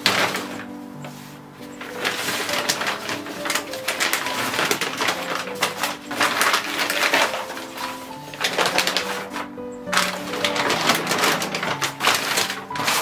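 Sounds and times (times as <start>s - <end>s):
plastic bin bag crinkling: 0.0s - 13.0s.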